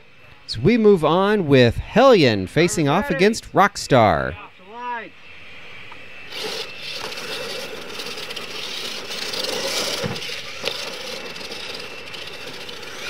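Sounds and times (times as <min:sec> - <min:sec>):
toy truck motors and tyres rushing: 0:06.1 - 0:13.0.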